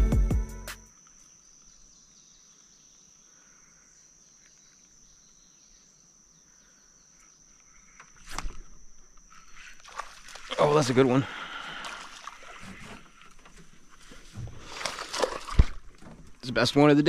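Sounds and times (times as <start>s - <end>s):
knock or splash: 14.3s - 16.2s.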